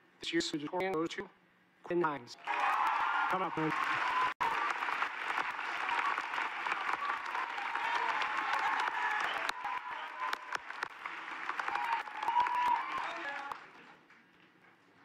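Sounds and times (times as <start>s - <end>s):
audience applauding: 2.4s - 14.3s.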